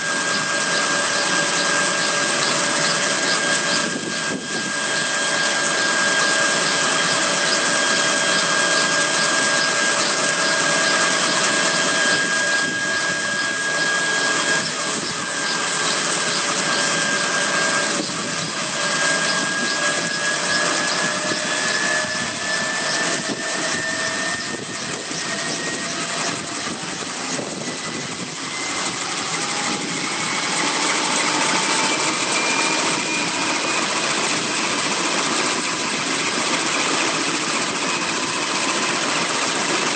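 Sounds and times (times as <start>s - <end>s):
helicopter turbine whine: 0.0s - 39.9s
rotor rushing noise: 0.0s - 39.9s.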